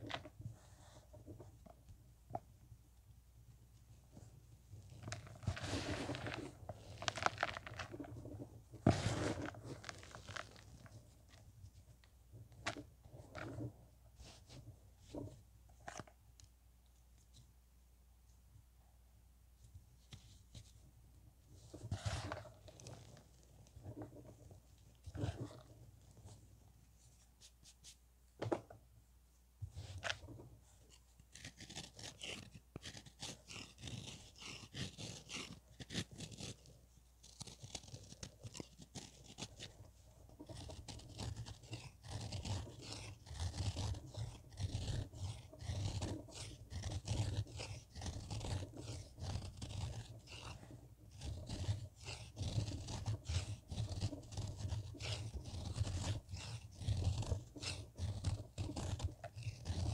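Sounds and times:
knife crunching pressed powder: 4.9 - 11.4, 31.2 - 59.9.

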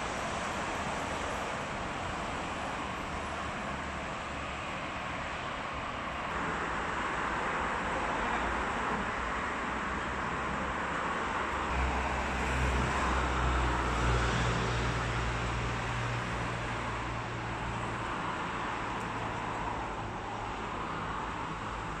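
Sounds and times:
road traffic noise: 0.0 - 22.0
vehicle engine hum: 11.4 - 22.0.

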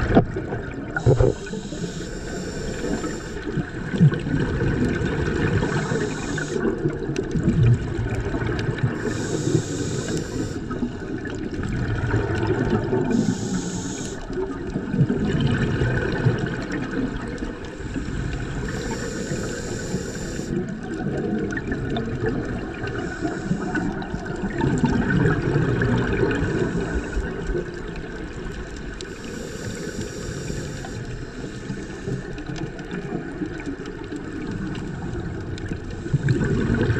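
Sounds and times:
bubbling exhaled air: 0.0 - 36.9
regulator inhale hiss: 0.9 - 3.8, 5.2 - 6.9, 8.8 - 11.3, 12.9 - 14.5, 17.6 - 20.7, 22.8 - 24.2, 26.2 - 27.6, 29.0 - 33.4.

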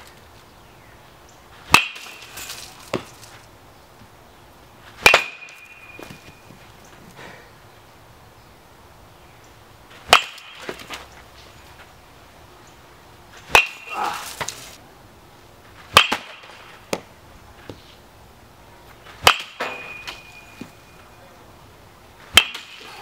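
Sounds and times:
balls knocking net and ground: 1.5 - 4.2, 4.8 - 7.4, 9.9 - 12.0, 13.3 - 14.8, 15.6 - 18.0, 18.8 - 21.2, 22.2 - 23.0
bat cracking ball: 1.7 - 3.2, 5.0 - 6.6, 10.0 - 11.1, 13.5 - 14.7, 15.9 - 17.1, 19.1 - 20.9, 22.3 - 23.0
ringing tone from bat: 5.3 - 6.5, 19.6 - 21.2.

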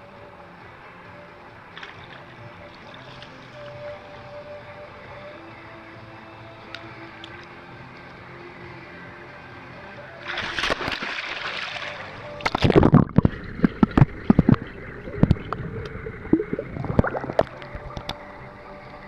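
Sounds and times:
pool water splashing: 1.6 - 4.4, 10.1 - 18.7
underwater bubbling: 12.4 - 18.6
muffled underwater knocks: 12.5 - 15.6.

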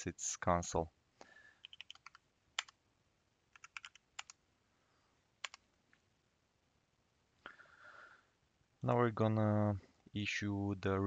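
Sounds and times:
keyboard typing clicks: 1.6 - 2.8, 3.5 - 4.4, 5.4 - 5.6.

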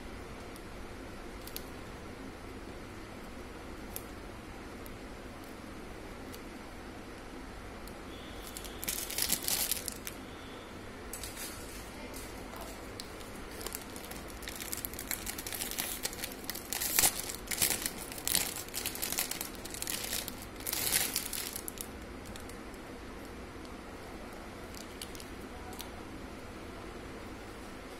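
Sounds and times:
wrapping crinkling and rustling: 8.4 - 10.2, 11.2 - 22.6, 24.2 - 26.0.

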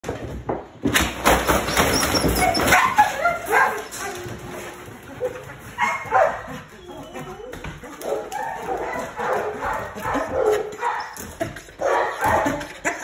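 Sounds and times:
dog whining and yipping: 1.8 - 3.7, 5.8 - 7.8.

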